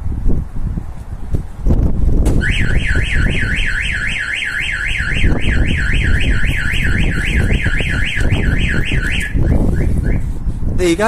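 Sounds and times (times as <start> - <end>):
van alarm siren warbling: 2.4 - 10.3.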